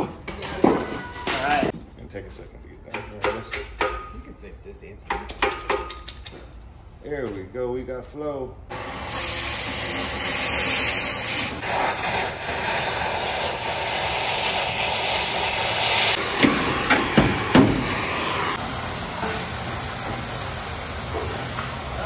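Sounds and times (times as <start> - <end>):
cutting torch hissing: 8.7 - 22.0.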